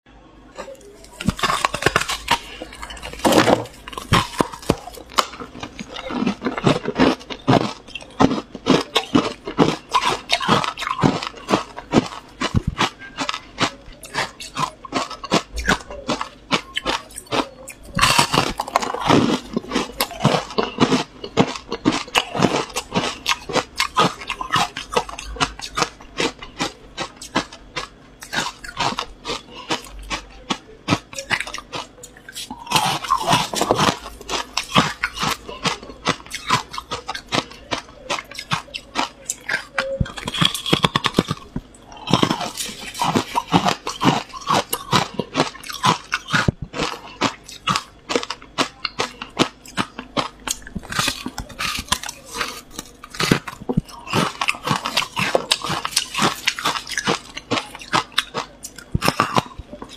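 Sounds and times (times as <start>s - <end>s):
ice being chewed: 0.5s - 59.9s.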